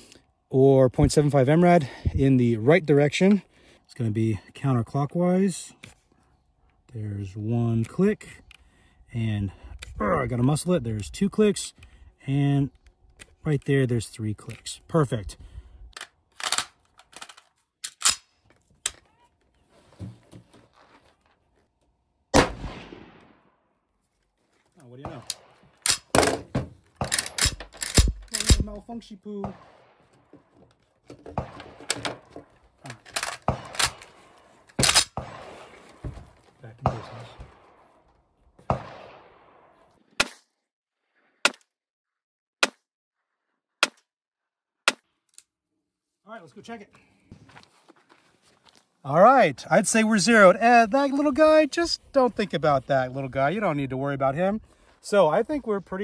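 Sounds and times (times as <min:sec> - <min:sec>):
rifle metallic clacks: 0:16.0 - 0:19.0, 0:25.0 - 0:28.7, 0:31.1 - 0:35.4
rifle shot with echo: 0:22.3 - 0:23.5, 0:29.4 - 0:30.1, 0:33.4 - 0:34.2, 0:34.8 - 0:35.8, 0:36.8 - 0:38.0, 0:38.6 - 0:40.4.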